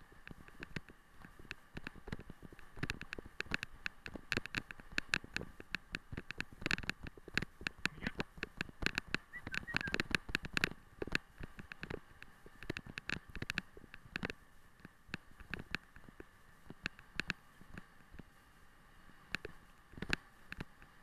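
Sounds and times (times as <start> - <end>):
faint steady hum: 0.0 - 21.0
sled rig clicking and knocking: 0.2 - 16.1.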